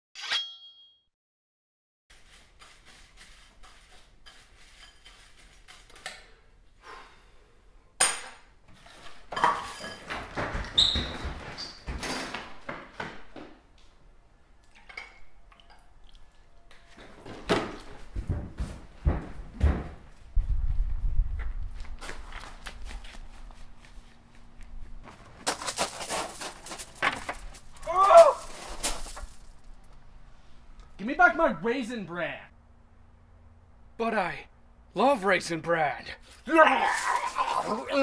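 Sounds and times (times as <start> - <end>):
dishes clattering on countertop: 9.3 - 10.6
rustling: 21.6 - 30.7.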